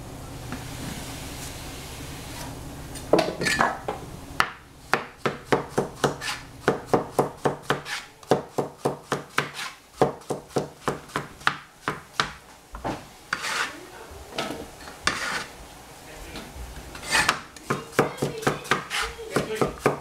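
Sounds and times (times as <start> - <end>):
cleaver chopping on cutting board: 4.4 - 12.4, 17.1 - 20.0.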